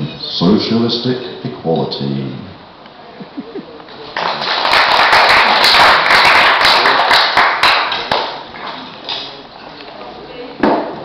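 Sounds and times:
small audience applauding: 4.1s - 8.8s.

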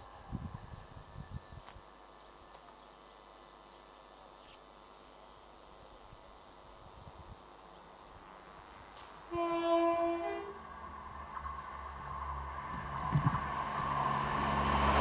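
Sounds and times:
faint outdoor background: 0.0s - 15.0s
train horn blast: 9.3s - 10.7s.

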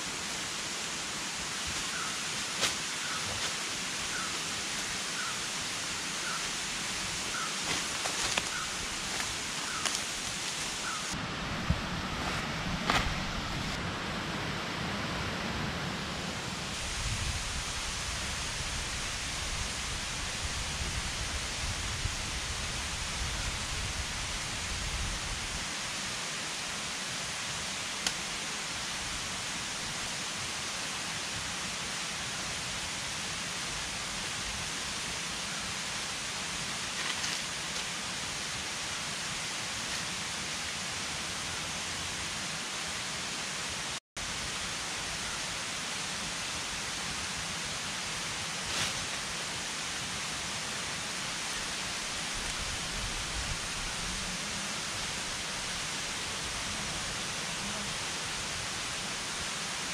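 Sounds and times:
river rushing: 0.0s - 20.5s.

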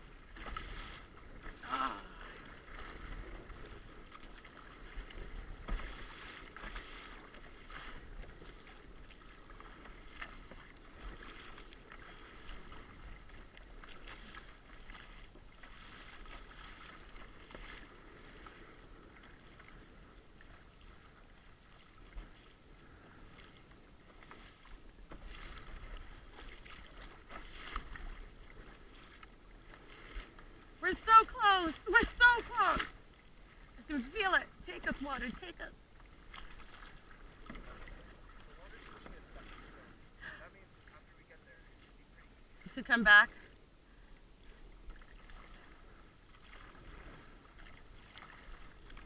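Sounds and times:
water slapping plastic hull: 0.0s - 19.8s, 33.6s - 39.8s
paddle strokes splashing: 0.0s - 49.0s.

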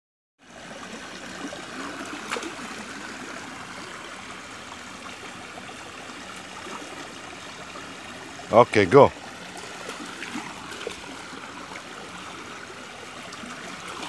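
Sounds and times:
stream trickling over rocks: 0.4s - 14.0s.

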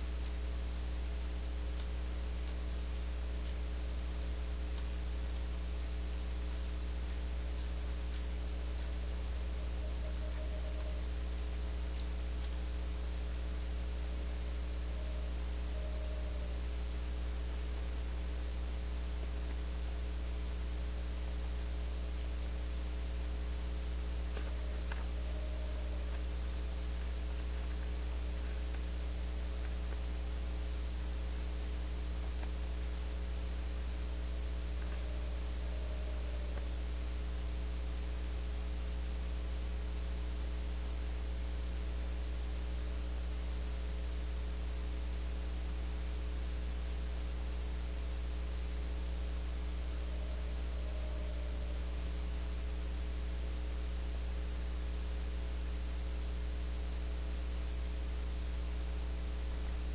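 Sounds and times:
steady electrical hum: 0.0s - 59.9s
owl trilling: 9.5s - 11.1s, 14.7s - 16.6s, 24.4s - 26.2s, 34.8s - 36.8s, 49.8s - 52.0s.

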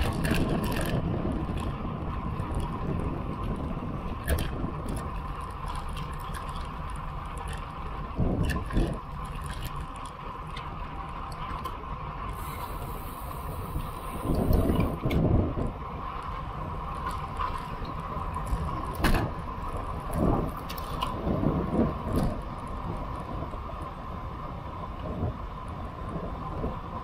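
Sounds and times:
wind and road noise: 0.0s - 27.0s
wind buffeting microphone: 0.0s - 27.0s.

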